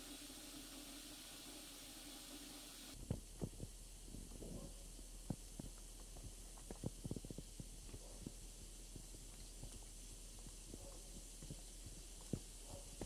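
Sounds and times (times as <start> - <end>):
acid solution fizzing: 0.0 - 3.0
soft low pops and gurgles: 3.0 - 13.0.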